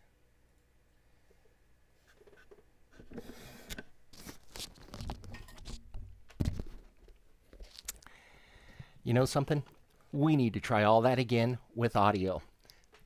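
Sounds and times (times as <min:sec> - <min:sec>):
handling rustling and scraping: 0:02.0 - 0:07.9.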